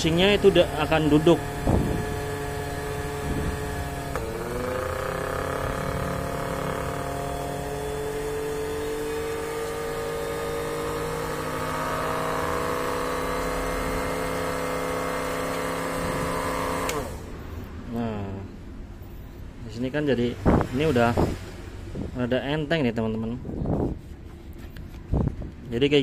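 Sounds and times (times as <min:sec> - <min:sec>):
blender motor running: 0:00.0 - 0:17.4.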